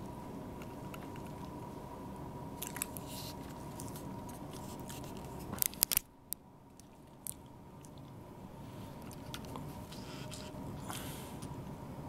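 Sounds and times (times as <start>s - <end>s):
cat crunching food: 0.6s - 1.6s, 2.6s - 6.0s, 6.7s - 8.2s, 9.0s - 10.6s.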